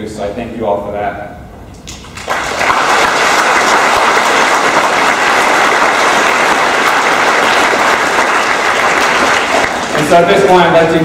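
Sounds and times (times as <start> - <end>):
audience applauding: 1.9 - 10.6.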